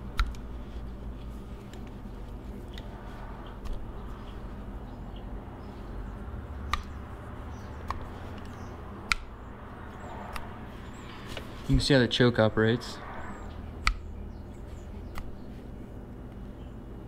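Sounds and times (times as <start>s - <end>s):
steady low hum: 0.0s - 17.0s
metallic clicks and taps: 7.8s - 9.3s.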